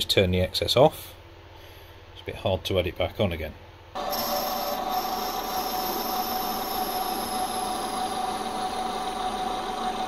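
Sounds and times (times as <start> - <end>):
high whine falling in pitch: 4.0 - 10.0
metal lathe humming: 4.0 - 10.0.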